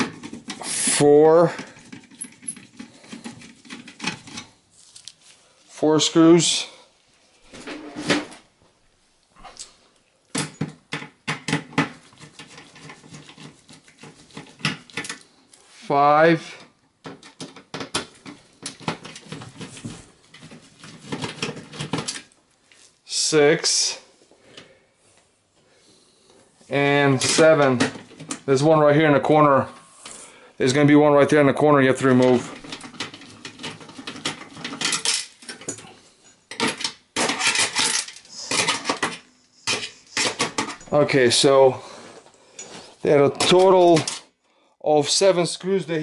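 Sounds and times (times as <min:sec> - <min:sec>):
screwdriver clicking and scraping: 0:11.4 - 0:15.6, 0:36.5 - 0:40.9.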